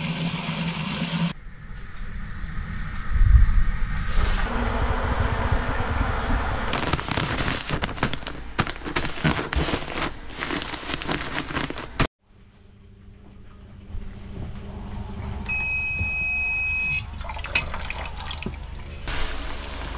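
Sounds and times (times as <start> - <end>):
plastic bag crinkling: 6.7 - 12.1.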